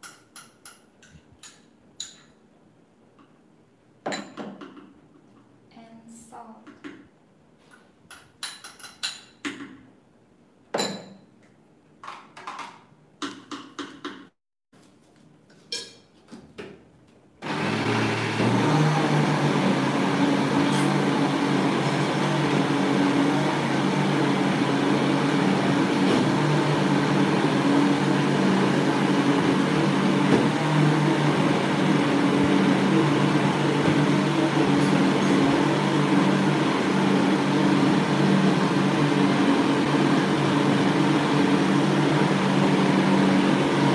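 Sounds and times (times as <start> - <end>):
blender running: 17.4 - 43.9.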